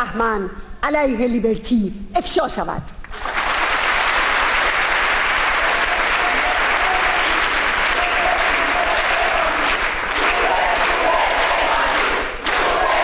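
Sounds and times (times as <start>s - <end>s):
audience applauding: 3.1s - 13.0s.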